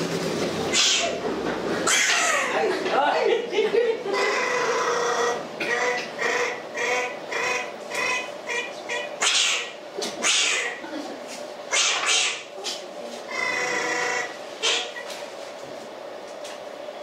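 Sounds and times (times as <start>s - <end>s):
squeaky buzzing puppet voice: 0.7s - 1.2s, 4.1s - 10.8s, 11.7s - 12.5s, 13.3s - 15.0s.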